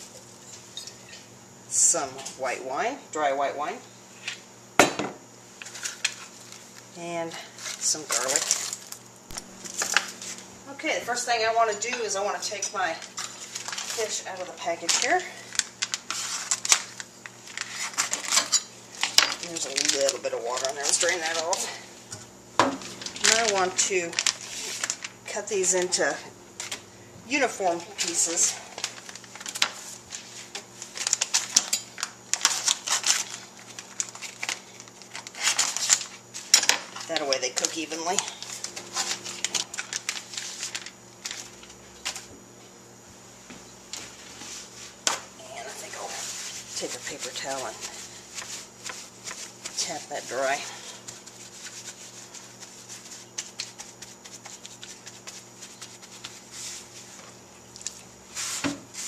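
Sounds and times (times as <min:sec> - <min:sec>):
plastic packaging crinkling: 0:07.5 - 0:10.5, 0:13.0 - 0:21.8, 0:22.8 - 0:42.3, 0:43.9 - 0:59.0
paper towel patting fish: 0:23.2 - 0:26.0, 0:44.0 - 0:59.0.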